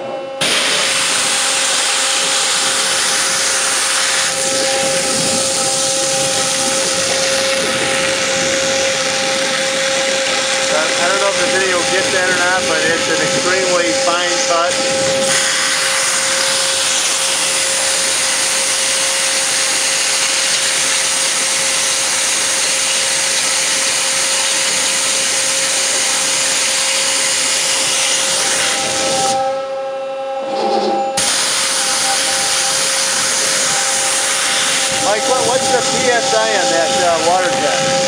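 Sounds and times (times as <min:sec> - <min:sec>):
high-pressure water jet hissing: 0:00.4 - 0:29.4, 0:31.2 - 0:38.0
steady tone: 0:03.5 - 0:17.9, 0:28.7 - 0:38.0.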